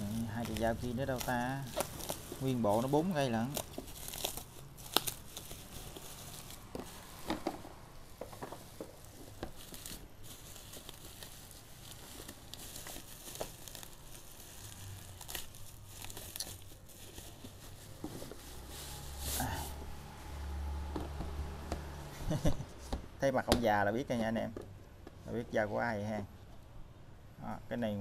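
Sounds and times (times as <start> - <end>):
knife slitting bubble wrap: 0.0 - 20.0
packages handled in cardboard box: 0.0 - 20.0
bubble wrap crinkling and crackling: 0.0 - 22.6.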